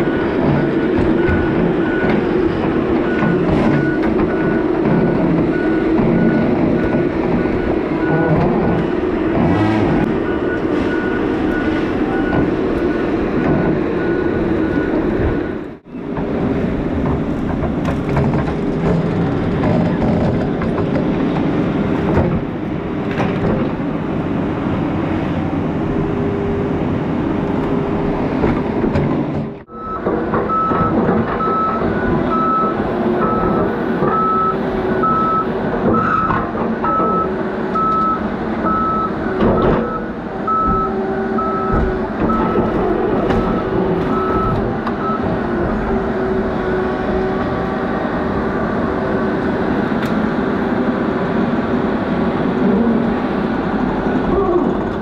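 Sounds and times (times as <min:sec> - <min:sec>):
diesel engine running: 0:00.0 - 0:55.0
backup alarm beeping: 0:29.7 - 0:36.3, 0:36.9 - 0:45.3.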